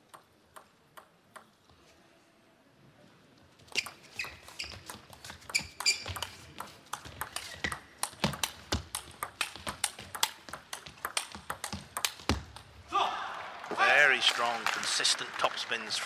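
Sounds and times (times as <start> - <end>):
table tennis ball clicking: 0.0 - 1.6, 3.8 - 12.7.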